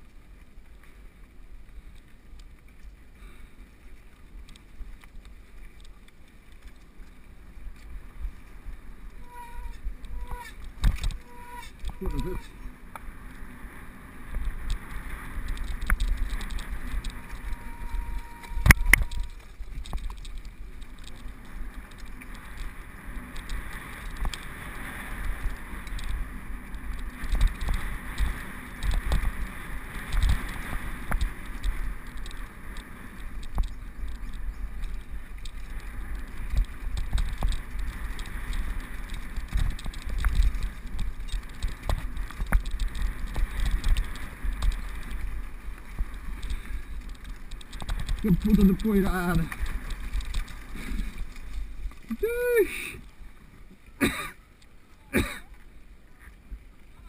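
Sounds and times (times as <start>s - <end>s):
low rumble: 6.4s - 53.9s
tyres crunching over stones: 14.4s - 24.6s
bike rattling and knocking: 25.3s - 50.6s.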